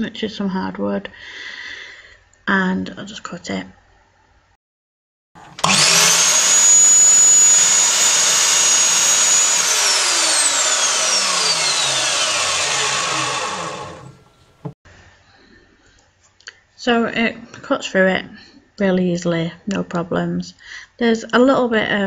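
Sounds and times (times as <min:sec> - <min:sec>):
saw blade cutting wood: 0:05.4 - 0:14.4
mitre saw whining: 0:05.4 - 0:14.8.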